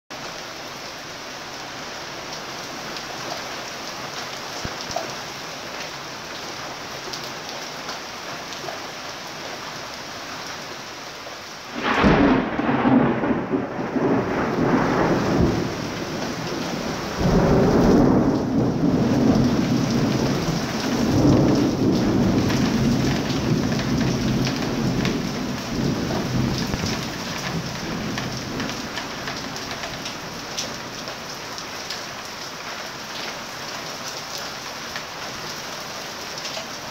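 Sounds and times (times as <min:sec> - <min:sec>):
steady rain: 0:00.1 - 0:36.9
rumbling thunder: 0:11.7 - 0:30.2
thunderclap: 0:11.8 - 0:28.9.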